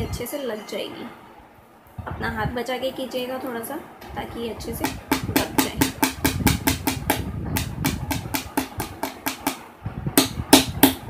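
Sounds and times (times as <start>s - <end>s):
metal hammer tapping metal hook: 4.8s - 9.6s.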